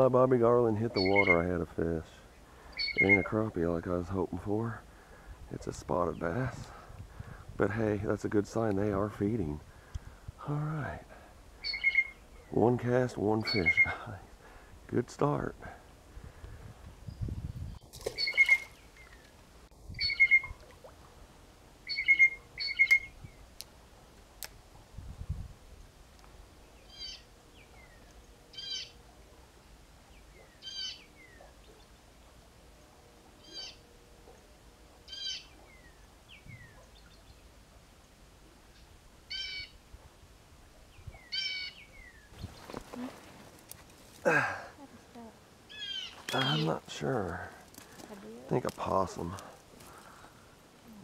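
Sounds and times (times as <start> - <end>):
loud bird calls: 1.0 - 1.4, 2.3 - 3.4, 11.6 - 12.6, 13.4 - 14.0, 18.0 - 19.3, 20.0 - 20.6, 21.8 - 23.2, 26.8 - 29.0, 30.2 - 31.9, 33.4 - 33.9, 35.1 - 37.3, 39.3 - 39.8, 41.1 - 42.8, 45.7 - 46.8.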